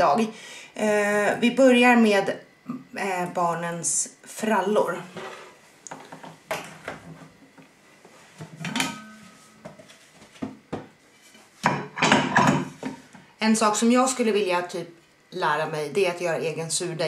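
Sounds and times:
steel bowl and lid clattering: 8.6s - 9.4s.

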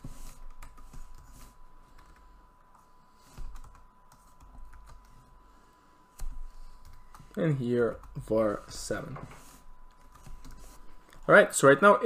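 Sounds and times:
computer keyboard typing: 0.0s - 5.3s, 6.2s - 8.6s, 9.9s - 11.2s.

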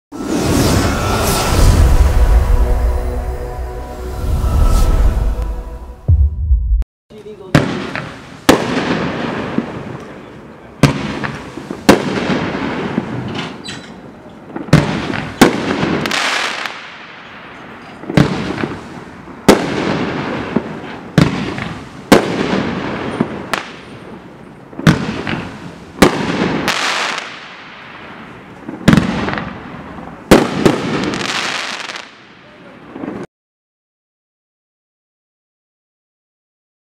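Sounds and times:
firework bangs: 7.4s - 13.6s, 14.5s - 33.3s
firework hiss and crackle: 14.7s - 33.2s.

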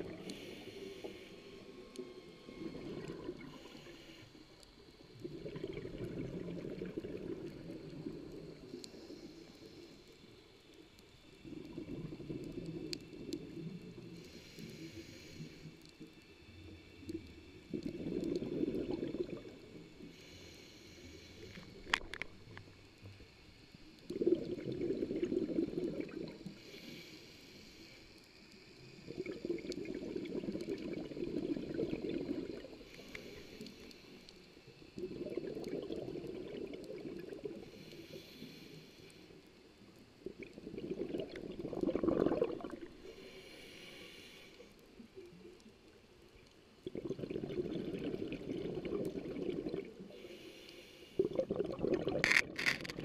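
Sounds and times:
faint inhalation hiss: 0.0s - 40.6s, 41.2s - 46.8s, 48.1s - 51.6s
bubbling underwater exhalations: 5.2s - 8.7s, 17.7s - 19.8s, 24.1s - 26.5s, 29.1s - 32.8s, 35.0s - 37.6s, 40.2s - 43.0s, 46.8s - 50.1s, 51.2s - 53.0s.

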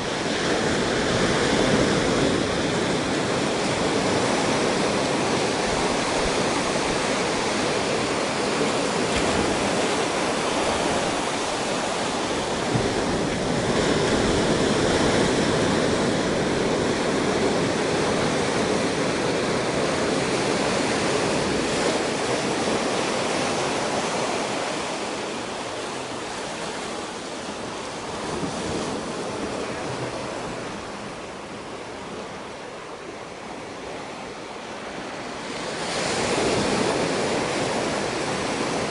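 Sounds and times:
ocean surf on rocks: 0.0s - 38.9s.

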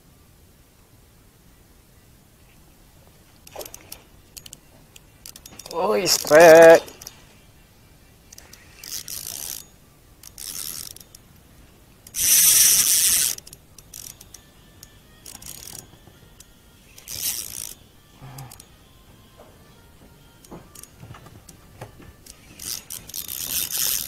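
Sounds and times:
fishing reel ratchet whirring: 3.4s - 7.2s, 8.3s - 11.3s, 12.0s - 18.9s, 20.2s - 21.6s, 22.2s - 24.0s.

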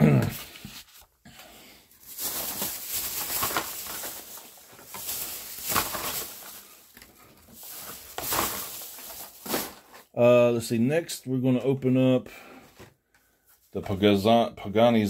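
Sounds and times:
hands rustling things on tabletop: 0.3s - 10.1s.

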